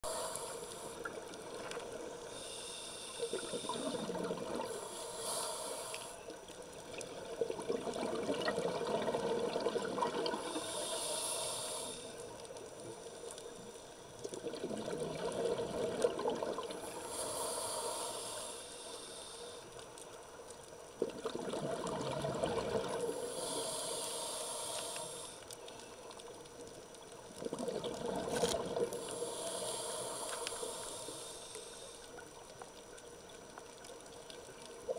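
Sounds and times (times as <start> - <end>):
regulator inhale hiss: 0.0 - 7.0, 10.2 - 14.2, 16.6 - 20.8, 22.9 - 26.8, 28.4 - 32.7
exhaled bubbles rushing: 7.0 - 10.5, 14.3 - 16.8, 21.0 - 23.1, 27.4 - 29.0.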